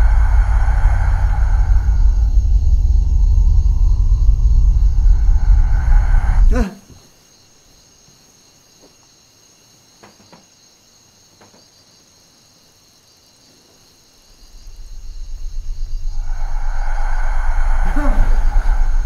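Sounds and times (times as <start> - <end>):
loud low rumble: 0.0 - 6.6, 14.3 - 19.0
crickets chirping: 0.0 - 19.0.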